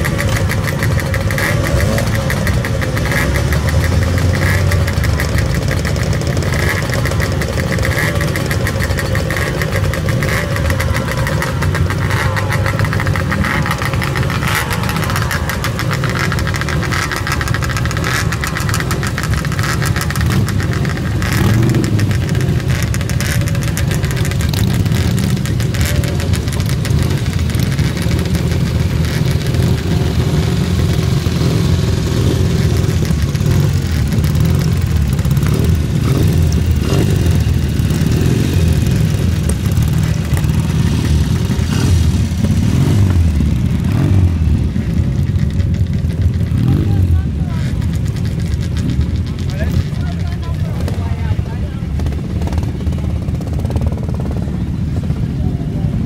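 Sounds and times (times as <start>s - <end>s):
motorcycle engines idling: 0.0s - 56.0s.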